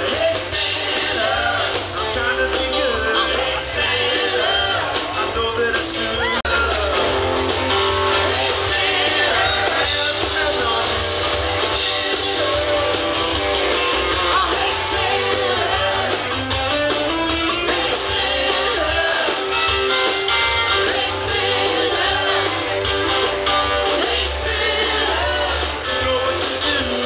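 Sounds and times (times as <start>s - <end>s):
person singing: 0.0s - 7.3s
drums: 0.0s - 27.0s
electric guitar: 0.0s - 27.0s.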